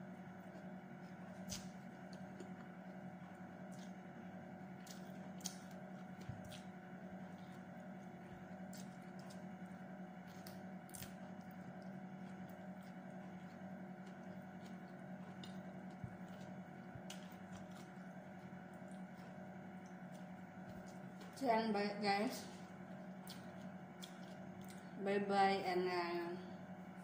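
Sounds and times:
low steady hum: 0:00.0 - 0:27.0
faint chewing: 0:00.3 - 0:21.4, 0:22.4 - 0:25.0.

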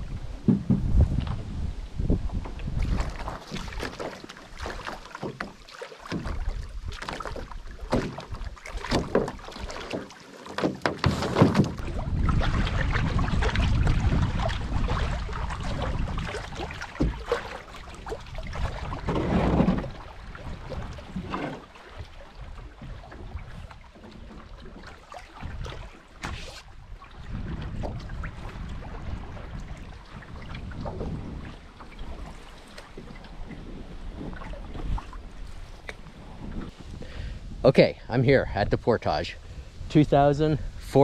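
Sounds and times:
wind buffeting microphone: 0:00.0 - 0:03.8, 0:11.6 - 0:21.4, 0:25.4 - 0:41.0
gear knocking on wooden canoe: 0:00.4 - 0:01.3, 0:02.3 - 0:12.0, 0:15.8 - 0:20.0.

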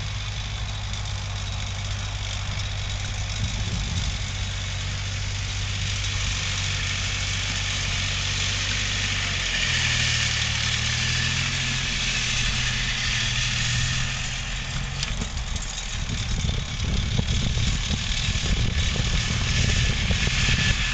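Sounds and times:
tractor engine running: 0:00.0 - 0:20.9.

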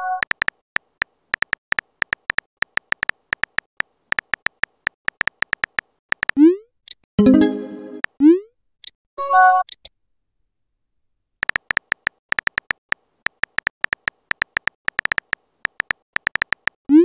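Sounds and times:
phone keyboard typing clicks: 0:00.1 - 0:00.6, 0:01.4 - 0:07.0, 0:11.4 - 0:16.8
brief tone chord: 0:07.2 - 0:08.0.

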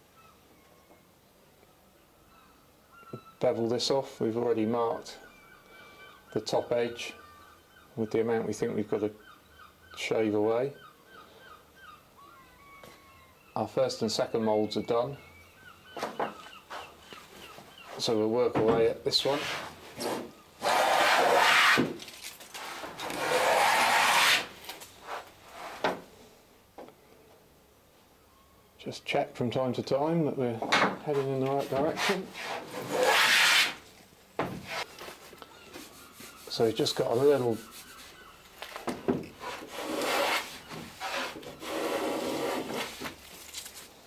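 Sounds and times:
hand plane shaving wood: 0:19.2 - 0:21.9, 0:23.0 - 0:24.5, 0:31.1 - 0:33.8, 0:39.4 - 0:43.1.

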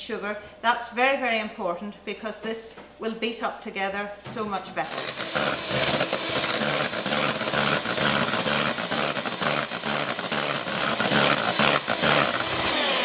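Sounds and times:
electric hand mixer whisking: 0:04.8 - 0:13.0.

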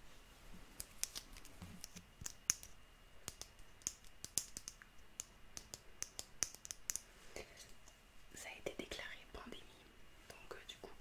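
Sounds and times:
sharp clicks and taps: 0:00.8 - 0:07.1.

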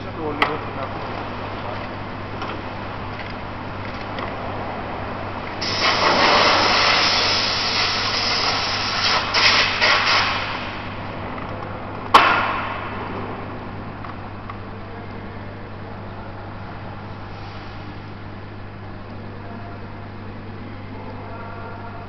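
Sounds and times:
workshop machinery hum: 0:00.0 - 0:22.0
loud hiss: 0:05.6 - 0:10.9.

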